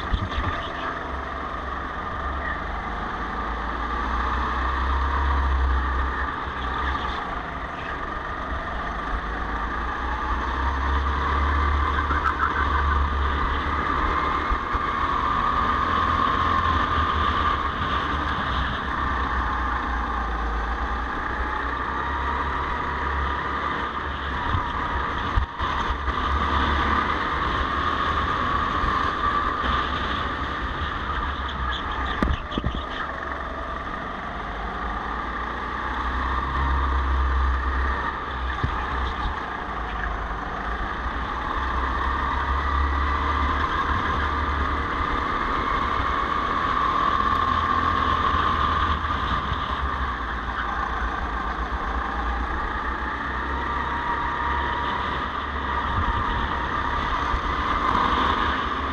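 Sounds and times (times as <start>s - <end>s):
wind rumble on microphone: 0.0s - 0.8s, 23.7s - 33.2s, 37.5s - 58.9s
go-kart engine racing: 0.0s - 58.9s.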